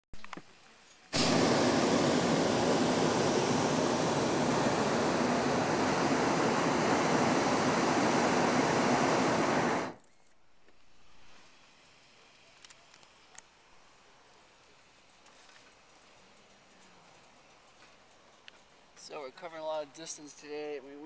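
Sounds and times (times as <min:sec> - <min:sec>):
propane burner blast: 0:01.0 - 0:10.0.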